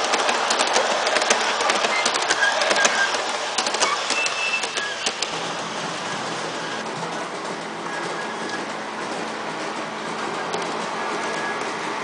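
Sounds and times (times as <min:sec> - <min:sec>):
model train rolling noise: 0:00.0 - 0:12.0
model train wheels clicking: 0:00.0 - 0:12.0
brief squeaks: 0:03.8 - 0:05.2.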